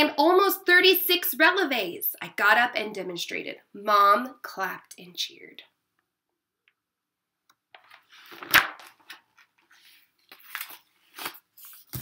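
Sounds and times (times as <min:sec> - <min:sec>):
book pages rustling: 0:07.8 - 0:12.0.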